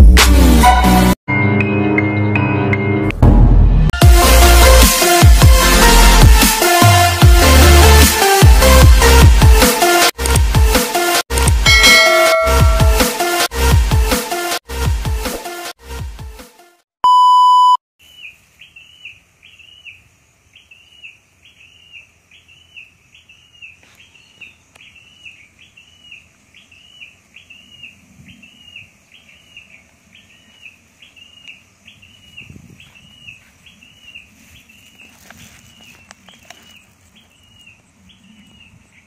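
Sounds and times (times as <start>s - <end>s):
loud steady beep: 11.7s - 13.1s, 17.0s - 17.8s
bird calling: 18.0s - 39.0s.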